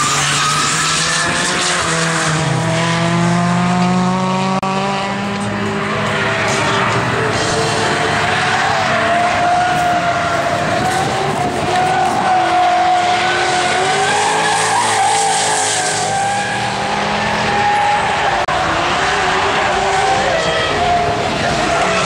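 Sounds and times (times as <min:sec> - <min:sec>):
tyres squealing: 0:06.2 - 0:22.0.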